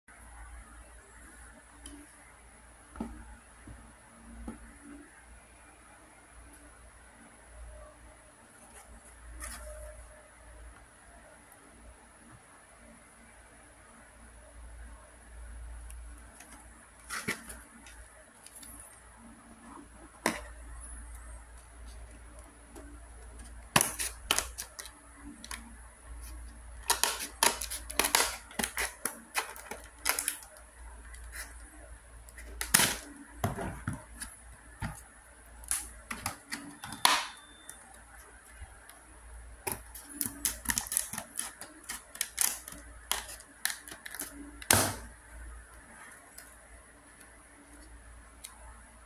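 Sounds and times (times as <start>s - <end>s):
plastic crackling: 21.9s - 39.0s, 39.6s - 45.1s
scissors snipping plastic: 22.8s - 25.6s, 26.8s - 30.6s, 39.6s - 45.1s.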